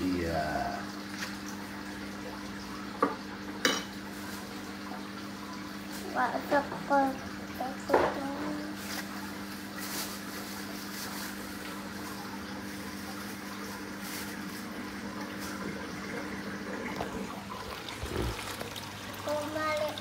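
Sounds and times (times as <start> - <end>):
low motor hum: 11.6 - 19.9.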